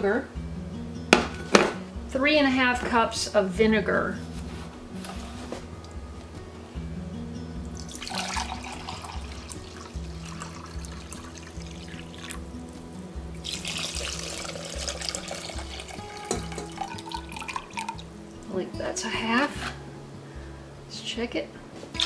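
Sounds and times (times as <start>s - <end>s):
background music with bass line: 0.0s - 20.9s
vinegar pouring into a pot: 7.7s - 12.4s, 13.4s - 18.1s.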